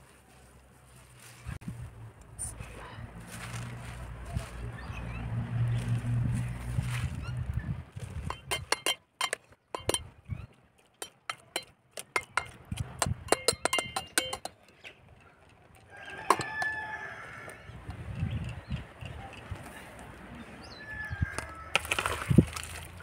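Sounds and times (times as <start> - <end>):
ladle striking pot: 8.2 - 10.1, 11.0 - 14.8, 16.3 - 16.8
spoon clinking against pot: 8.2 - 10.1, 11.0 - 17.0.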